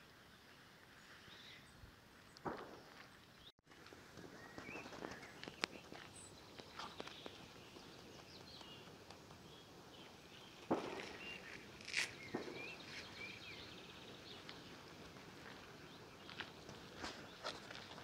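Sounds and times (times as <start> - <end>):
songbird chirping: 0.0 - 3.5, 4.1 - 18.0
bird pecking and stepping on gravel: 3.7 - 18.0.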